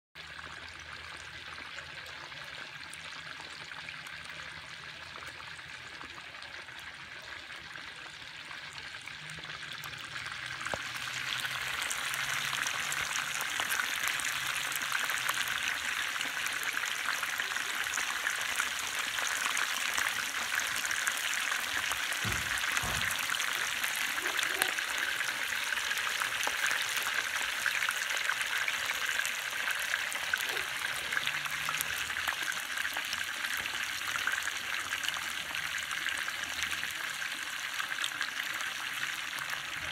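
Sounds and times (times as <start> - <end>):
chicken deep-frying in oil: 0.2 - 39.9
wood fire burning: 19.0 - 24.2.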